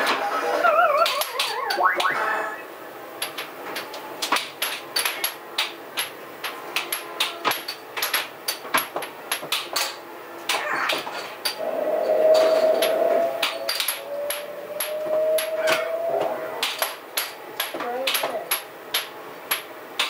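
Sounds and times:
air hockey puck clacks: 0:01.0 - 0:02.2, 0:03.2 - 0:11.6, 0:12.4 - 0:20.0
steady tone: 0:11.6 - 0:16.8.

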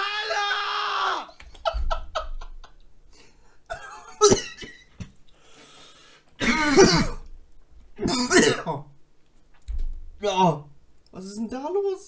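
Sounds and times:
man coughing: 0:03.7 - 0:04.8, 0:06.4 - 0:07.3, 0:08.0 - 0:08.8.

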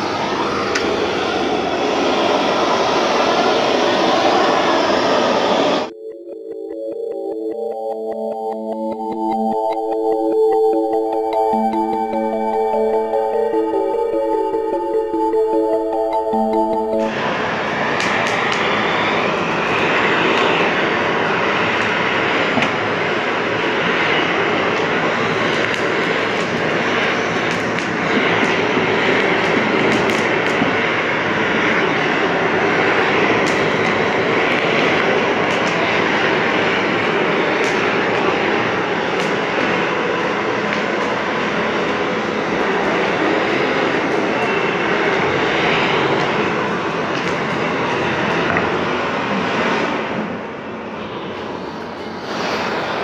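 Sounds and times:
electronic synth music: 0:05.8 - 0:17.6
blowtorch hissing: 0:52.2 - 0:53.0.

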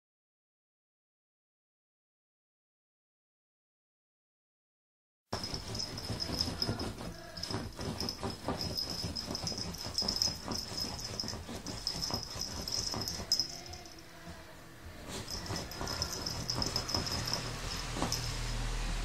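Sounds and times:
puppy scratching at bedsheets: 0:05.4 - 0:14.0, 0:15.0 - 0:19.0
high steady tone: 0:05.4 - 0:18.8.

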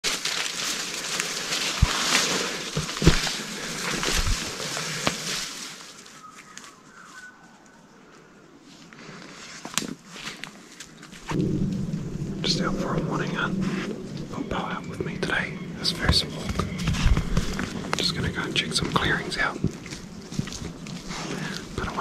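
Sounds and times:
twigs snapping: 0:00.0 - 0:06.8, 0:09.6 - 0:11.9, 0:15.8 - 0:22.0
footsteps crunching leaf litter: 0:00.0 - 0:07.4, 0:08.7 - 0:11.4, 0:15.4 - 0:22.0.

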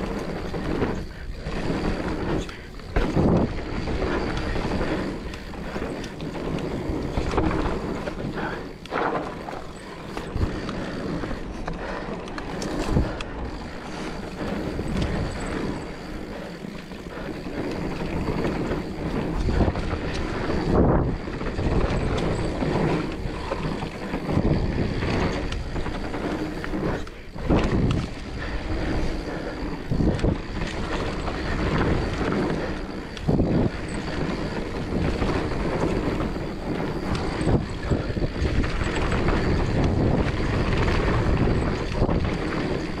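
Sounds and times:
bike knocks and rattles: 0:00.0 - 0:43.0
tyres rumbling on dirt: 0:00.0 - 0:43.0
wind rushing over microphone: 0:00.0 - 0:43.0.

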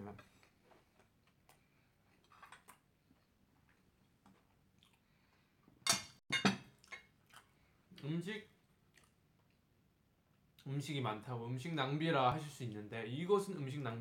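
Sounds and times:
faint chewing: 0:00.3 - 0:05.7, 0:06.8 - 0:10.7
plates clattering on a table: 0:05.9 - 0:06.6.

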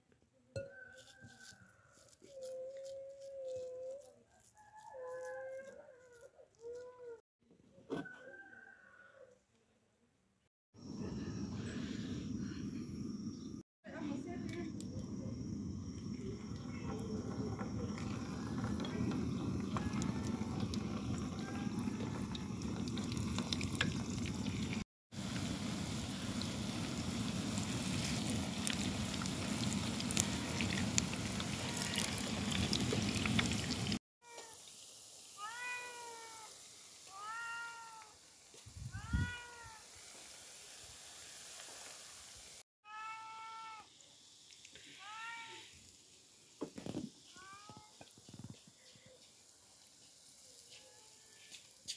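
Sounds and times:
balls frying in hot oil: 0:16.2 - 0:42.6, 0:48.0 - 0:51.9
cat meowing: 0:35.4 - 0:36.5, 0:37.1 - 0:38.1, 0:39.0 - 0:39.8, 0:42.9 - 0:43.9.

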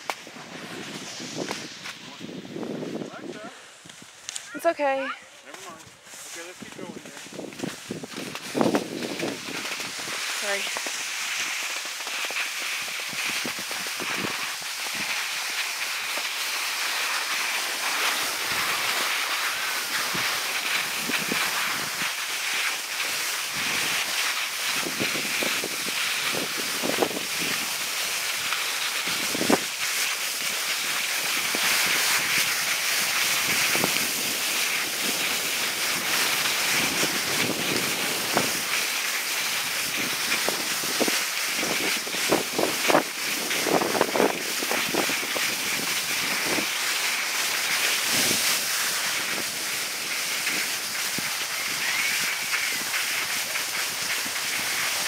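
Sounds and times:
wind rushing across microphone: 0:00.0 - 0:04.2, 0:05.8 - 0:10.8, 0:12.8 - 0:15.1, 0:24.7 - 0:27.8, 0:29.0 - 0:29.8, 0:31.4 - 0:38.8, 0:39.5 - 0:46.7
ski scrapes: 0:00.0 - 0:55.0
skis hissing over snow: 0:00.0 - 0:55.0.

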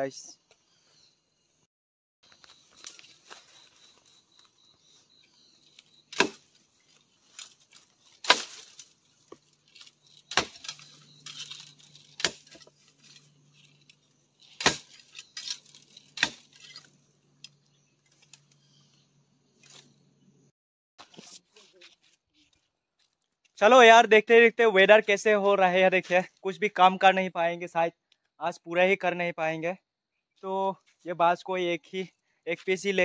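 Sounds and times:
rustling leaves and stalks: 0:02.3 - 0:19.0
bamboo chopping strikes: 0:06.1 - 0:06.6, 0:07.3 - 0:13.2, 0:14.5 - 0:16.9.

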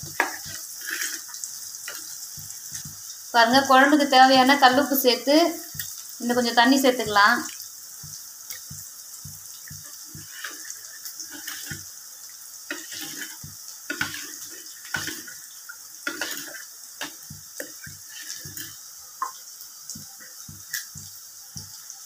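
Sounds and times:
liquid sloshing: 0:09.7 - 0:11.9, 0:12.7 - 0:19.4.

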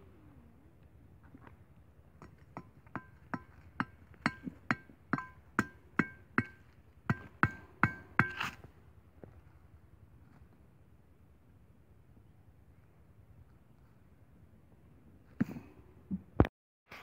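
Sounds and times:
machete scraping metal: 0:08.2 - 0:08.7.

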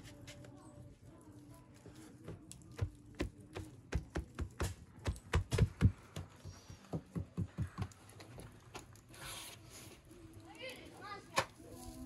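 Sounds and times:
hands patting dough: 0:01.6 - 0:08.4.

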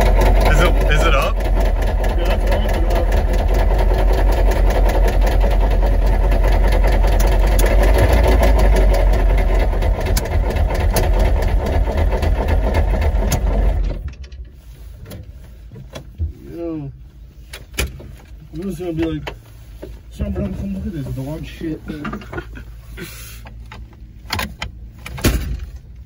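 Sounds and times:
diesel engine with hard knocking: 0:00.0 - 0:14.3.

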